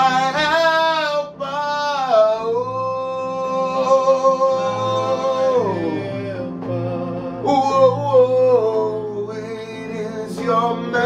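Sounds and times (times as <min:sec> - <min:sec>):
man singing long held note: 0:00.0 - 0:11.0
sustained keyboard chords: 0:00.0 - 0:11.0.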